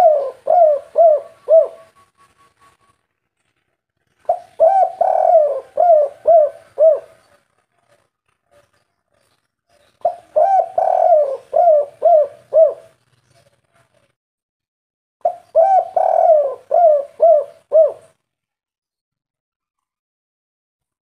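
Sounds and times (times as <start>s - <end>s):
dove cooing: 0.0s - 2.9s, 4.2s - 8.6s, 10.0s - 13.0s, 15.2s - 18.2s.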